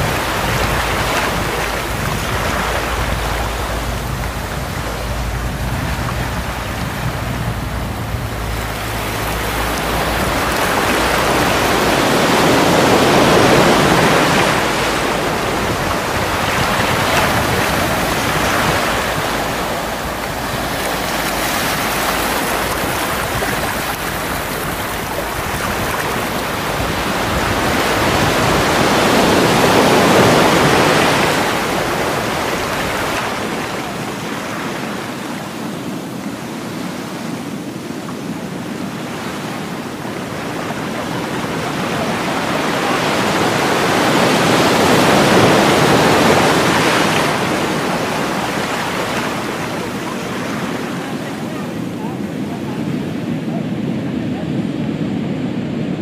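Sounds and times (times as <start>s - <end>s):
deep low rumble: 0.0s - 11.9s
ocean waves breaking: 0.0s - 56.0s.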